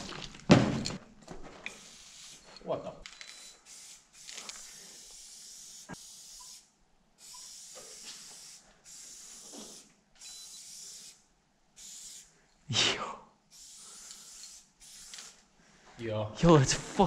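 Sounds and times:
spray-paint can hissing: 0:01.7 - 0:02.4, 0:03.3 - 0:11.2, 0:11.8 - 0:12.3, 0:13.5 - 0:15.4.

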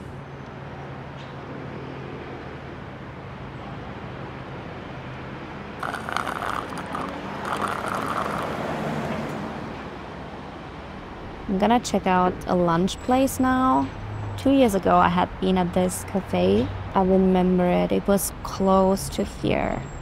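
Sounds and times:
low hum of traffic: 0:00.0 - 0:20.0
rattling passing vehicle: 0:05.7 - 0:11.4.

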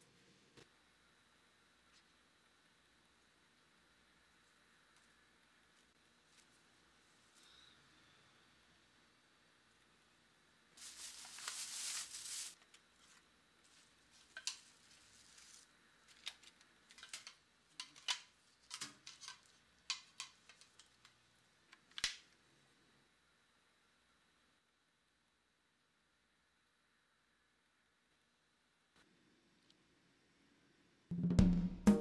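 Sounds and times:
papery rustle: 0:10.8 - 0:17.4.

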